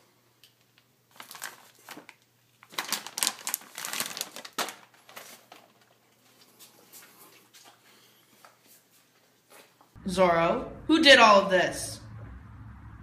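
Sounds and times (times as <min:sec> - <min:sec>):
plastic bag crinkling: 0:00.7 - 0:06.4.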